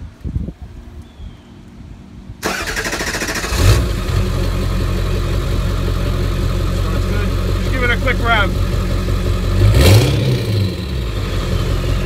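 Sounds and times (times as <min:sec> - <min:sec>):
diesel engine idling: 0:02.4 - 0:12.0.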